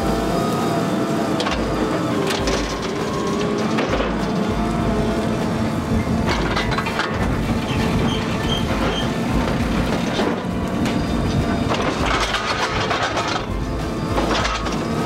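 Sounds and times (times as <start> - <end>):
engine running steadily: 0.0 - 15.0
metal arm clanking: 6.0 - 15.0.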